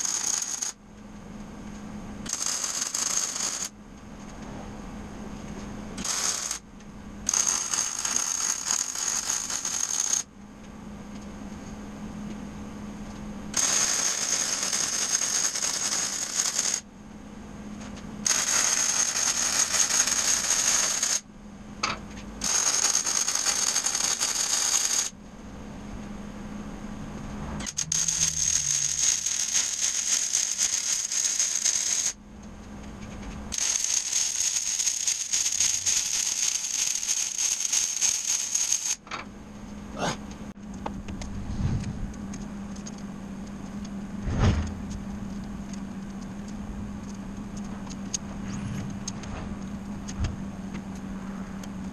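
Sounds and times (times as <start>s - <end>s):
welding arc crackling: 0.0s - 0.8s, 2.3s - 3.7s, 6.0s - 6.6s, 7.3s - 10.3s, 13.6s - 16.8s, 18.2s - 21.2s, 22.4s - 25.1s, 27.6s - 32.2s, 33.5s - 39.0s
low steady hum: 0.8s - 2.3s, 3.7s - 7.3s, 10.3s - 13.6s, 16.8s - 18.3s, 21.2s - 22.5s, 25.1s - 29.8s, 32.2s - 33.6s, 39.0s - 51.9s.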